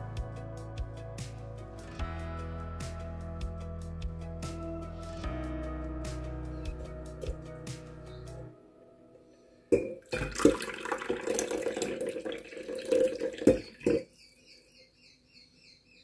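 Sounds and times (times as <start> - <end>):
tea pouring into cup: 10.0 - 14.0
faint high chirping: 12.4 - 16.0.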